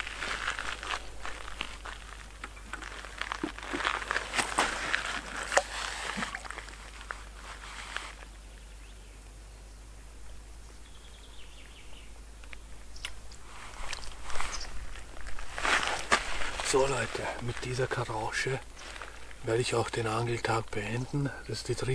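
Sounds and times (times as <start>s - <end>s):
rustling: 0.0s - 8.4s, 13.0s - 19.6s.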